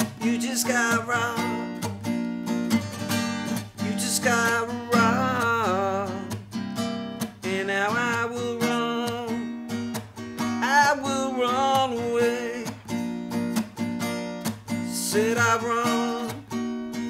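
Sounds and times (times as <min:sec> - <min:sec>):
man singing: 0:00.0 - 0:01.9, 0:03.8 - 0:06.4, 0:07.3 - 0:09.5, 0:10.6 - 0:12.9, 0:14.8 - 0:16.6
acoustic guitar strumming: 0:00.0 - 0:17.0.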